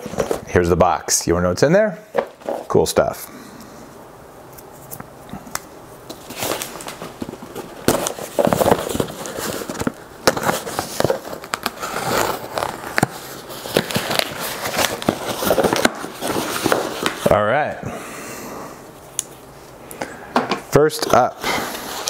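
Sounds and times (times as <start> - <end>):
packing tape tearing: 4.6 - 17.3.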